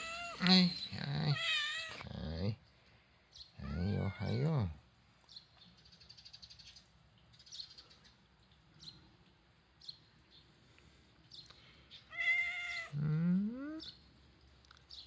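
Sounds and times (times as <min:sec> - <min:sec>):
cat meowing: 0:00.0 - 0:02.0, 0:03.6 - 0:04.4, 0:12.1 - 0:13.0.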